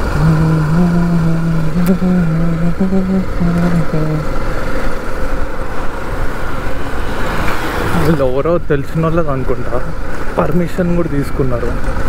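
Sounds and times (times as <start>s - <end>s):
motorcycle engine running: 0.0s - 6.7s
road rumble: 0.0s - 12.0s.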